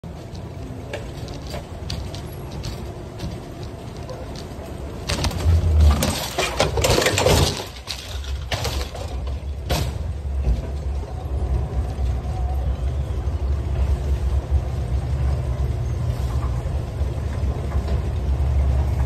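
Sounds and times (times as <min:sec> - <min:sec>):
cart clattering in conveyor: 0:00.0 - 0:19.0
conveyor rumbling: 0:00.0 - 0:19.0
cart wheels rolling on hard floor: 0:00.1 - 0:09.6.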